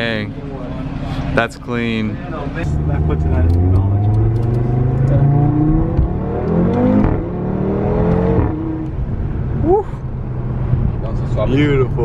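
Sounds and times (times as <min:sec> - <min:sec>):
car engine accelerating: 0:00.0 - 0:12.0
sharp rising sound: 0:02.6 - 0:08.9.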